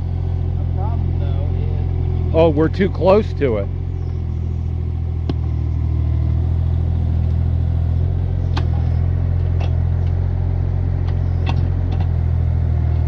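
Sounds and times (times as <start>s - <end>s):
excavator engine under load: 0.0s - 13.0s.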